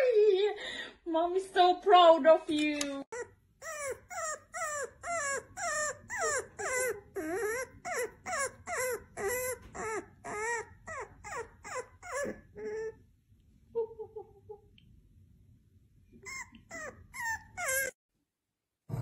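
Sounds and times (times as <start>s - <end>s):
puppy whining: 3.1s - 13.2s, 16.1s - 18.0s.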